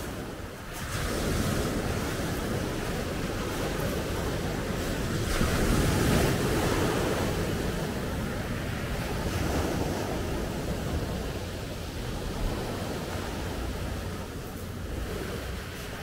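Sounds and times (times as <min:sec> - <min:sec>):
waves breaking on pebble beach: 0:00.0 - 0:16.0.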